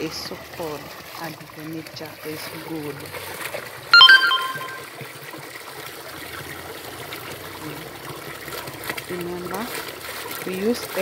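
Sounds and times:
high ringing sound: 0:04.0 - 0:04.8
water splashing into plastic basin: 0:05.7 - 0:11.0.

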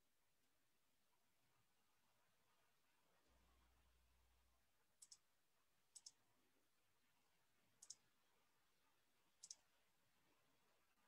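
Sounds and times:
faint double clicks: 0:05.0 - 0:05.2, 0:06.0 - 0:06.2, 0:07.8 - 0:08.0, 0:09.4 - 0:09.6.

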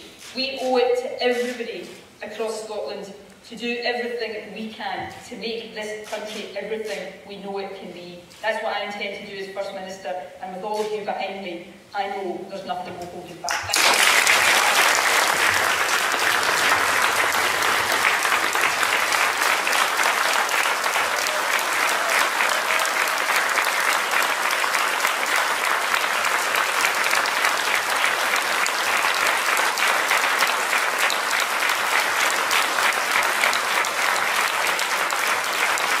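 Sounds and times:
large audience applauding: 0:13.5 - 0:36.0.

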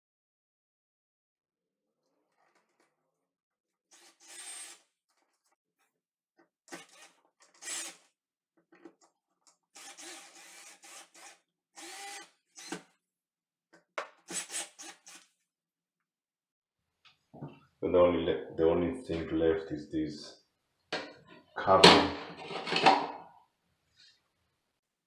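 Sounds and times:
cordless drill whirring: 0:03.9 - 0:04.9, 0:06.7 - 0:08.1, 0:09.8 - 0:12.9, 0:14.3 - 0:15.3.

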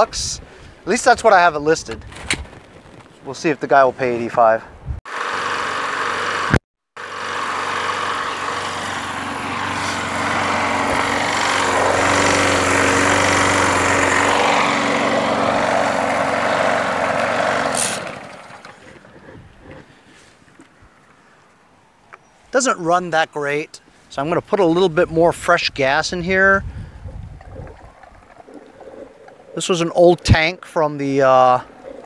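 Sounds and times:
lawn mower engine running: 0:05.1 - 0:19.2.

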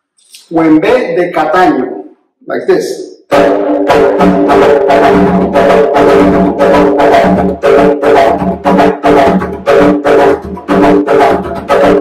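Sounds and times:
barrel drum played by hand: 0:03.3 - 0:12.0.

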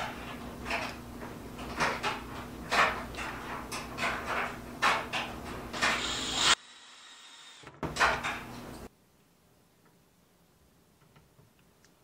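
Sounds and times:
cordless drill driving screws: 0:05.9 - 0:07.7.

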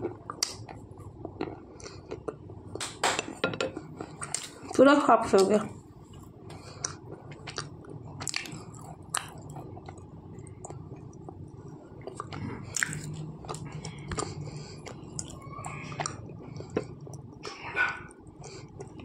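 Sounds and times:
chewing with crunches: 0:00.0 - 0:02.8, 0:05.4 - 0:19.0
low steady hum: 0:00.0 - 0:19.0.

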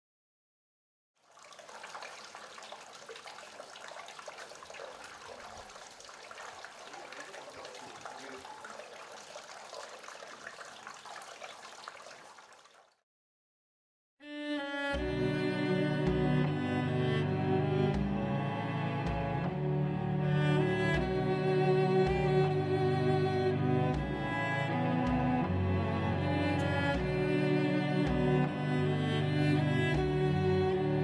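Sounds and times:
water trickling and dripping: 0:01.2 - 0:13.0
slow bowed-string music with cello: 0:14.2 - 0:31.0.

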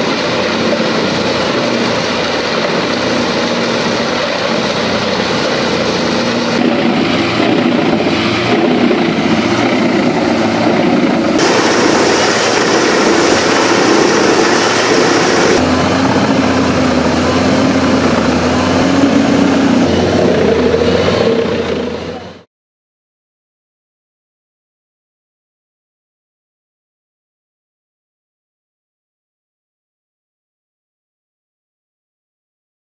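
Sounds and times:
trees being chipped: 0:00.0 - 0:20.4
wood chipper engine drone: 0:00.0 - 0:22.5.

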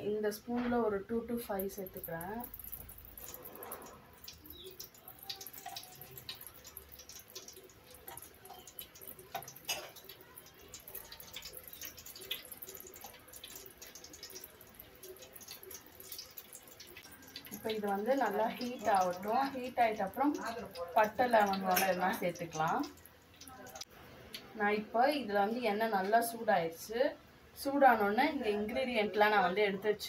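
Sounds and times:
oil dripping: 0:01.4 - 0:23.9.

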